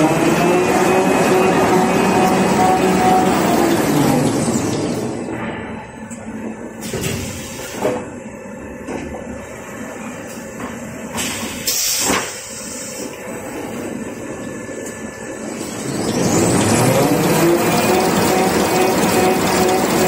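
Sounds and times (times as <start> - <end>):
machine whine: 0.0 - 7.0, 13.0 - 20.0
machine rollers running: 0.0 - 11.6, 13.0 - 20.0.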